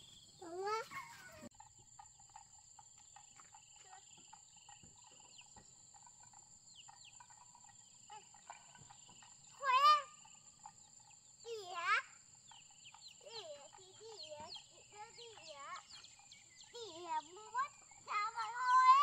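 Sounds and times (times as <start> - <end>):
crickets and insects chirring: 0.0 - 19.0.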